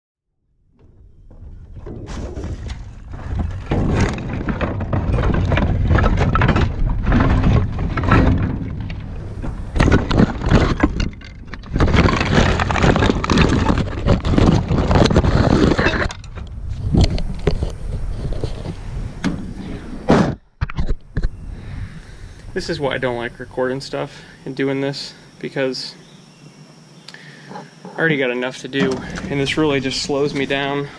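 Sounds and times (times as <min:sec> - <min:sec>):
debris clattering in a dumpster: 0:01.3 - 0:16.4.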